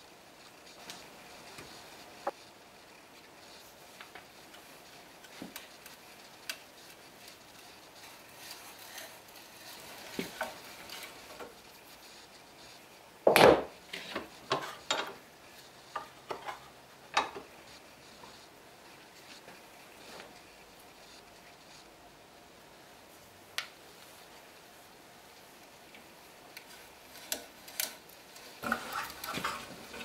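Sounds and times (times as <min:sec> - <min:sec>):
wood and tools clicking and knocking: 0:13.2 - 0:15.2, 0:15.9 - 0:17.5, 0:25.9 - 0:30.0
clattering scrape: 0:13.9 - 0:15.2, 0:15.9 - 0:17.4, 0:27.1 - 0:30.0.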